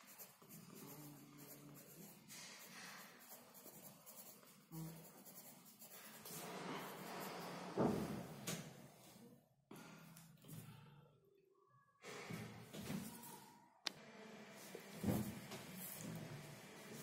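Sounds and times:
pencil writing on paper: 0.0 - 7.8.

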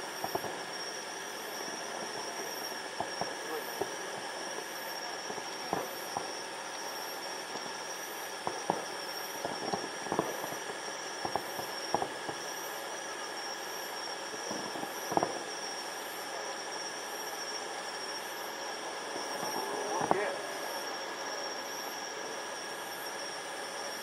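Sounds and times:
distant fireworks bursting: 0.0 - 12.9, 14.4 - 15.9, 18.6 - 21.9
high-pitched whine: 0.0 - 24.0.

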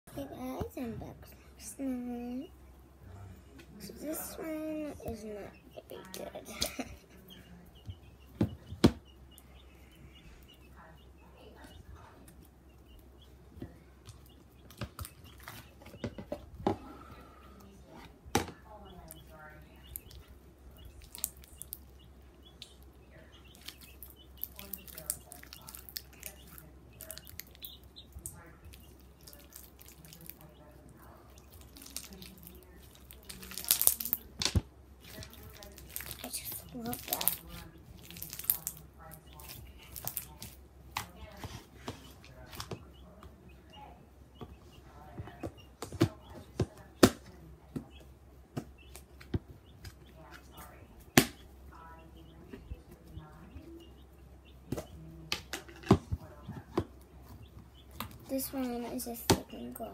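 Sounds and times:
wet clicks and pops: 31.4 - 41.2.

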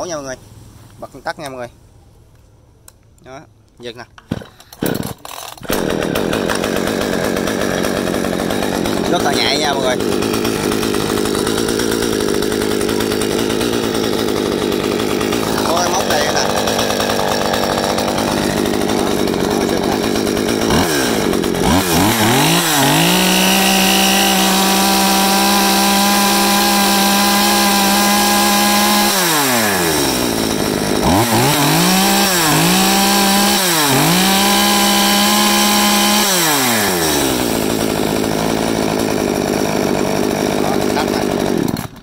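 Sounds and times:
chainsaw idling and revving: 4.2 - 42.0.

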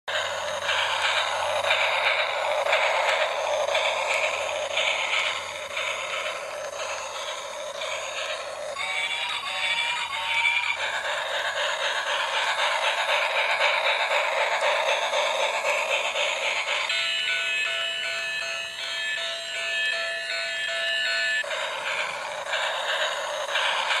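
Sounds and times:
toy train chuffing sound effect: 0.1 - 24.0
toy train rattling on track: 0.1 - 24.0
toy train whistle tooting: 0.2 - 12.5.

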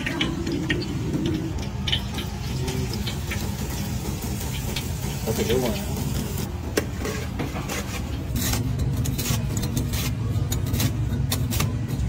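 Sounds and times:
knife crunching through crust: 7.8 - 11.8.

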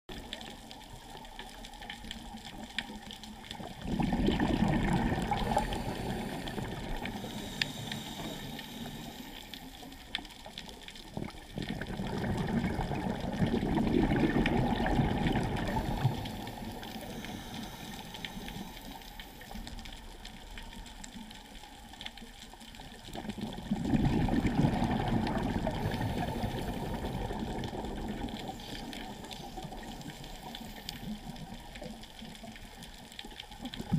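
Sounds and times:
underwater regulator bubbles rushing: 3.6 - 9.0, 11.2 - 17.4, 23.2 - 30.9.

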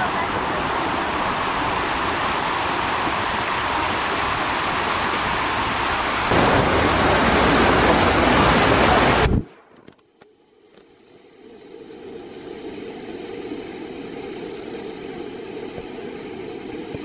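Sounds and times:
water rushing down slide: 0.0 - 9.4.

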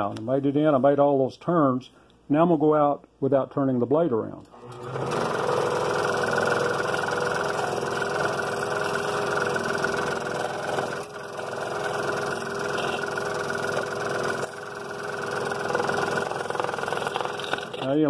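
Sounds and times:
scroll saw cutting wood: 4.6 - 18.0.

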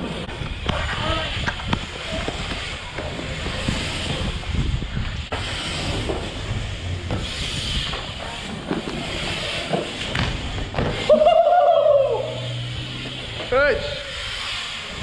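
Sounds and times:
bike tyres rolling on concrete: 0.0 - 15.0
wind on microphone: 0.3 - 5.5
rider shouting: 11.0 - 12.6.

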